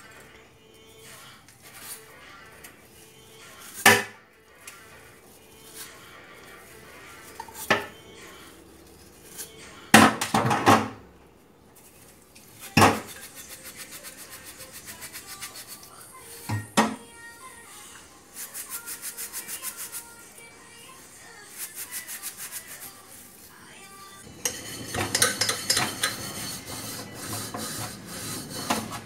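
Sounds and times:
utensil clinking on plate: 24.3 - 26.7.

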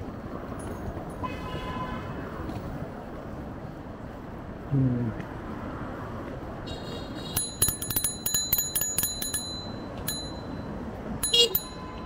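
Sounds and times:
road noise: 0.0 - 12.0
bicycle bell ringing: 7.3 - 12.0.

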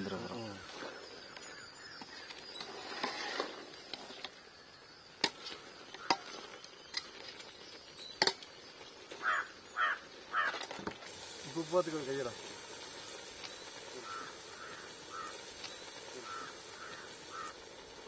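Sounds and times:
crow cawing: 9.2 - 10.6, 14.0 - 15.5, 16.2 - 17.6.

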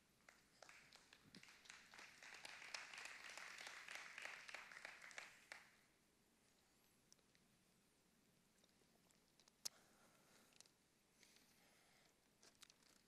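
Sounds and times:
faint applause: 0.2 - 5.8.

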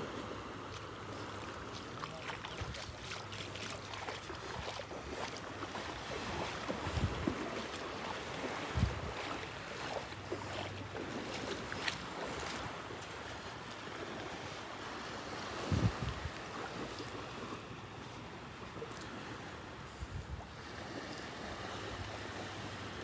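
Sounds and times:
small waves washing on beach: 0.0 - 23.0
wind on microphone: 6.2 - 7.7, 8.3 - 9.4, 15.4 - 16.9, 19.8 - 21.0.

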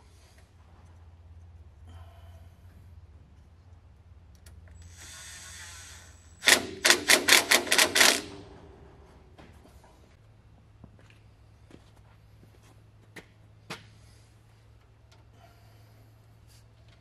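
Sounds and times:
impact driver hammering: 6.4 - 8.6.

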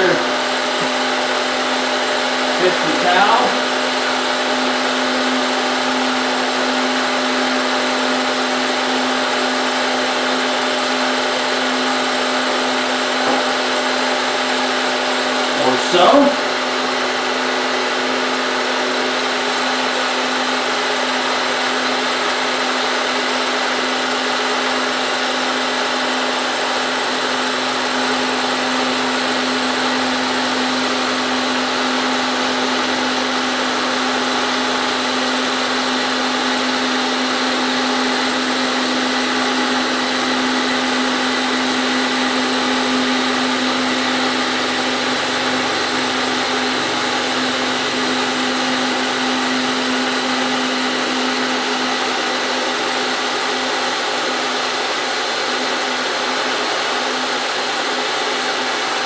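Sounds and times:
end mill cutting metal: 0.0 - 59.0
milling machine motor hum: 0.0 - 59.0.

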